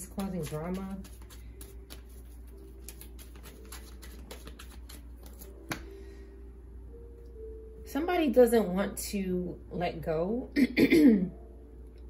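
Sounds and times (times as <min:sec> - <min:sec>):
cards shuffling: 0:00.0 - 0:05.9
sharp card snap: 0:02.9 - 0:05.9.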